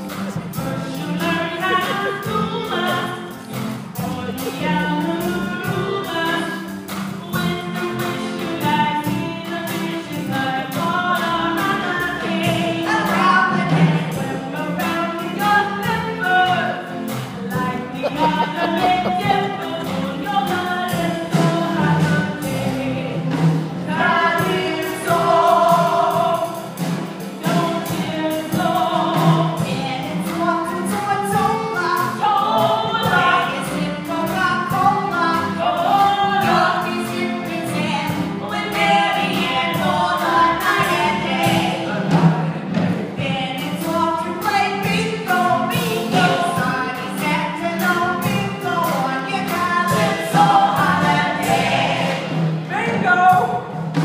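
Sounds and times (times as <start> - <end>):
choir singing: 18.0 - 19.9, 49.9 - 52.5.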